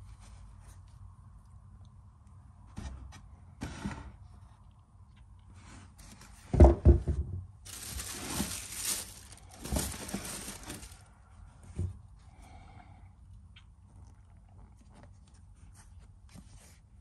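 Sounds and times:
wrapping crinkling and rustling: 0:07.6 - 0:11.1.

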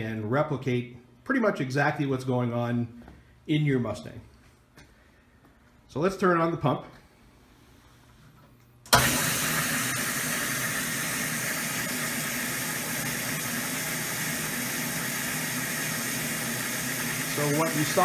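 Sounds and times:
electric fuel pump running: 0:08.8 - 0:18.0
fuel spraying with rushing noise: 0:09.0 - 0:18.0.

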